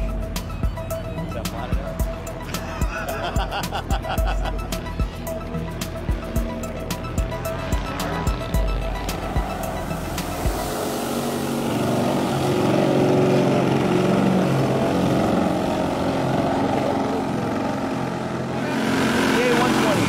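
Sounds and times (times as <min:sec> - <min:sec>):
model plane engine and propeller: 0:09.1 - 0:20.0.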